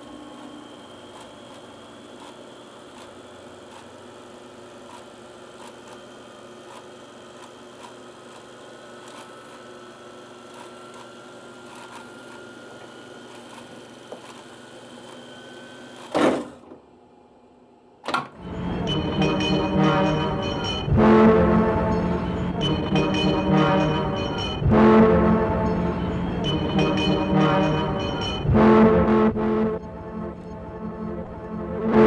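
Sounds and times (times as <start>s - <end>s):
tape machine whirring: 0.0s - 16.8s, 17.9s - 32.0s
faint rising whine: 18.4s - 32.0s.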